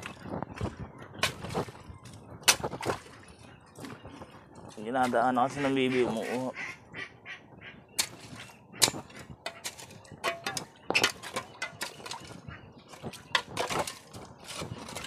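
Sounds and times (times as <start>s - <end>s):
hoe chopping and scraping mud: 1.2s - 1.8s, 2.4s - 3.1s, 8.0s - 12.3s, 12.9s - 15.0s.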